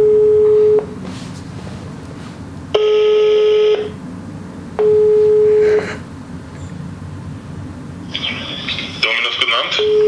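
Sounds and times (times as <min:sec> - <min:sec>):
telephone ringing tone beeps: 0:00.0 - 0:00.8, 0:02.8 - 0:03.9, 0:04.8 - 0:05.7, 0:09.8 - 0:10.0.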